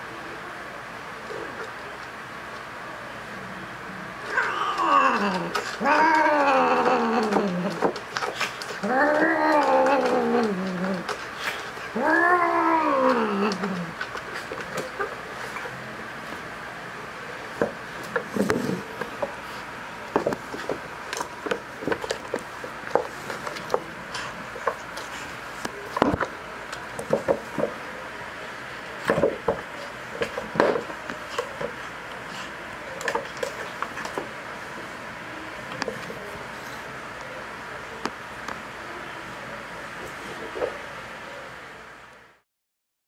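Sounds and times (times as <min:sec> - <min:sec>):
cats moving on wooden floor: 0:04.3 - 0:16.4, 0:17.6 - 0:27.9.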